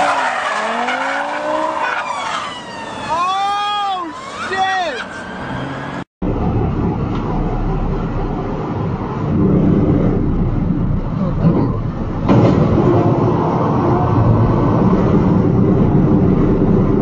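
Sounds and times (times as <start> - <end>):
truck engine rumble and road noise: 0.0 - 17.0
truck crash: 11.4 - 13.4.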